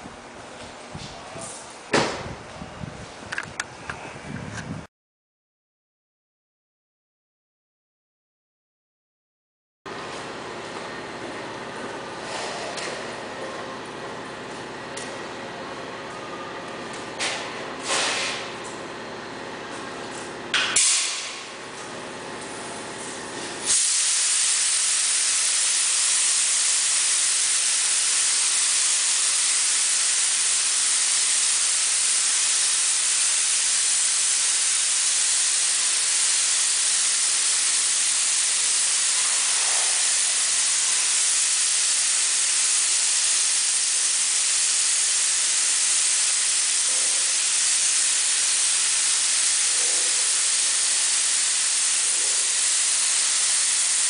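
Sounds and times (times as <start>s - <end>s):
paint spray gun hissing: 20.6s - 21.6s, 22.6s - 54.0s.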